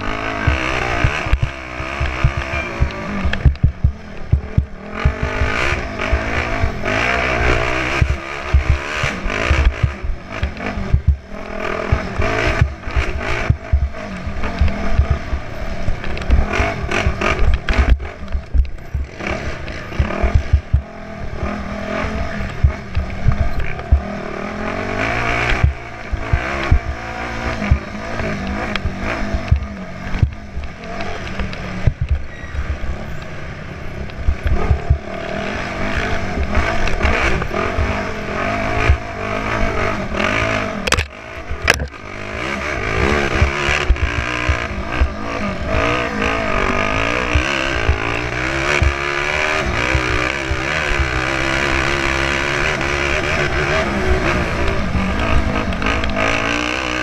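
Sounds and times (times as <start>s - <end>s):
motorcycle engine revving: 0.0s - 57.0s
bike knocks and rattles: 0.4s - 6.4s, 7.8s - 20.9s, 22.4s - 24.1s, 25.4s - 33.3s, 40.8s - 42.0s.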